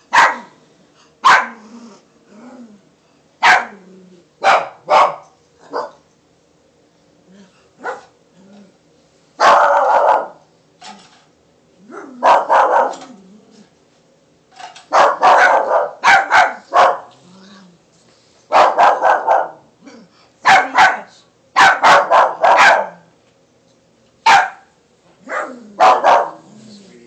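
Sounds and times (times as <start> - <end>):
puppy yapping: 1.2 - 1.6, 3.4 - 3.8, 14.9 - 17.1, 20.5 - 23.0, 24.3 - 24.7, 25.3 - 26.4
puppy growling: 1.4 - 2.9, 3.6 - 4.4, 7.2 - 7.7, 8.3 - 8.8, 11.8 - 13.8, 16.5 - 17.8, 25.2 - 27.0.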